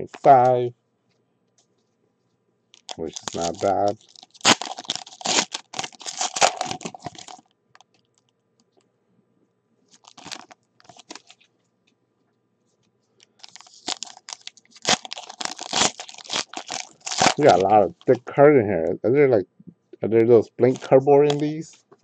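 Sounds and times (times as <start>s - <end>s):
foil wrappers crinkling and tearing: 2.8s - 7.5s, 9.9s - 11.5s, 13.3s - 18.2s, 20.6s - 21.7s.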